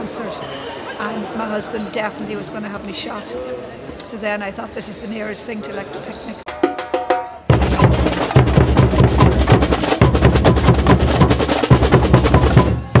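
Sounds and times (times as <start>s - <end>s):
street percussion band playing: 6.5s - 13.0s.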